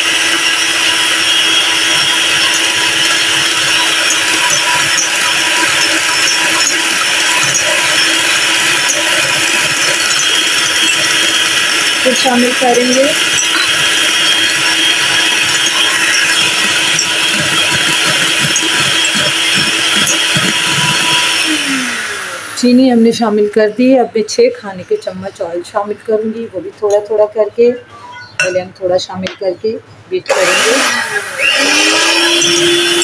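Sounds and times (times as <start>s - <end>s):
electric hand mixer whisking: 0.0s - 23.0s, 30.3s - 33.0s.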